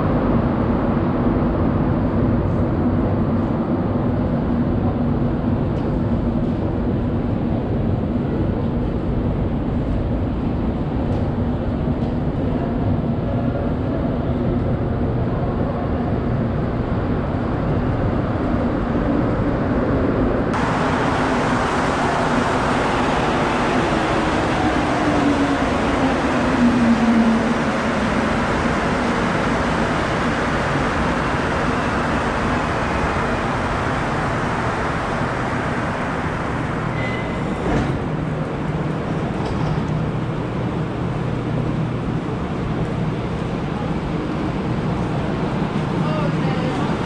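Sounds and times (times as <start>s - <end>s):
train low hum: 0.0s - 47.0s
train rumble and motor whine: 0.0s - 47.0s
short tone: 36.9s - 37.6s.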